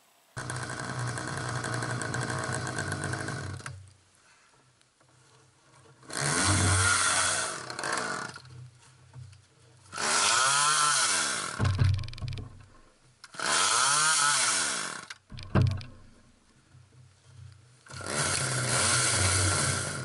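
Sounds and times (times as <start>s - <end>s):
chainsaw idling and revving: 0.4s - 3.8s, 6.0s - 8.6s, 9.9s - 12.6s, 13.3s - 16.2s, 17.9s - 20.0s.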